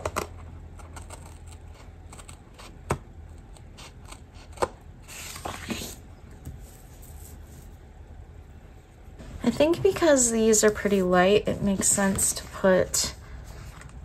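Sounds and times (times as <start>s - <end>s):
scissors snipping paper: 0.0s - 4.8s
paper rustling: 5.0s - 7.8s.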